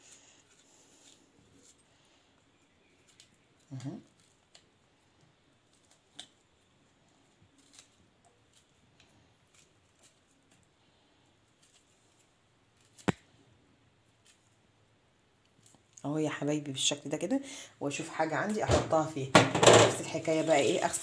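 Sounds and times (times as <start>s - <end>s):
knife scraping orange peel: 0.0s - 2.0s, 7.2s - 10.7s, 11.5s - 13.2s.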